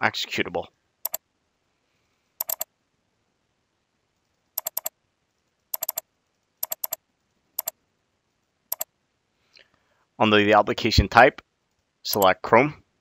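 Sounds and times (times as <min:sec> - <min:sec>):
computer mouse clicks: 0:02.4 - 0:02.7, 0:04.6 - 0:05.0, 0:05.7 - 0:07.0, 0:07.6 - 0:07.8, 0:11.7 - 0:12.3.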